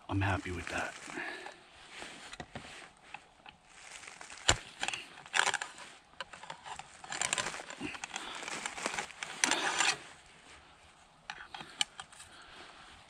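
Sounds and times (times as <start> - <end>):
ramrod sliding in barrel: 4.4 - 10.0.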